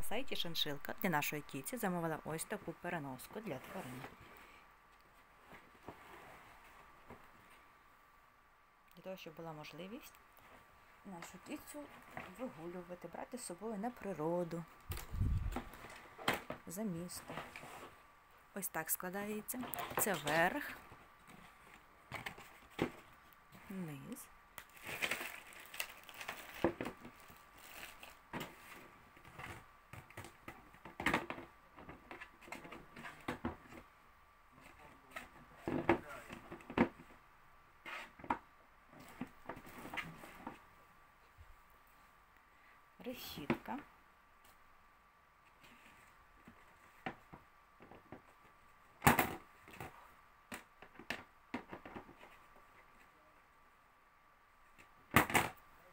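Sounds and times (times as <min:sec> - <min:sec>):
plastic bag crinkling: 0:24.6 - 0:28.2.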